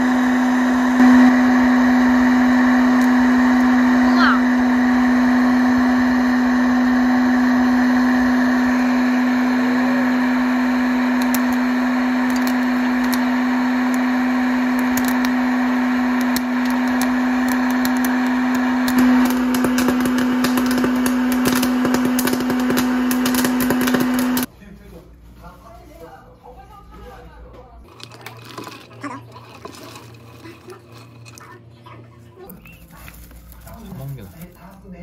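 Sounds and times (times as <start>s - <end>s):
popcorn maker motor hum: 0.0s - 24.5s, 27.8s - 35.0s
popcorn kernels popping: 10.2s - 24.5s, 27.9s - 31.6s.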